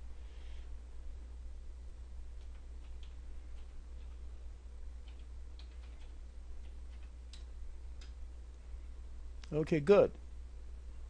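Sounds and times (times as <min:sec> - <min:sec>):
steady low hum: 0:00.0 - 0:11.0
keyboard keystrokes clicking: 0:05.0 - 0:08.2.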